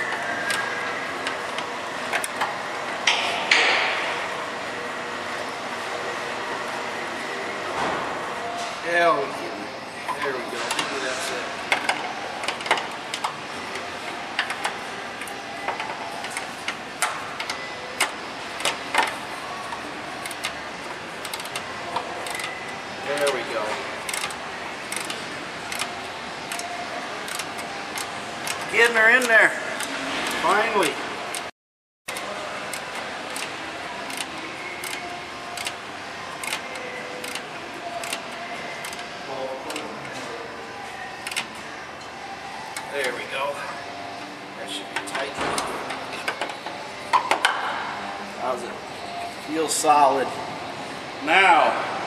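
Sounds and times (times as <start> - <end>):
ratchet wrench clicking: 24.1 - 25.9, 27.3 - 28.6, 34.1 - 35.8, 37.2 - 37.4, 38.0 - 38.2.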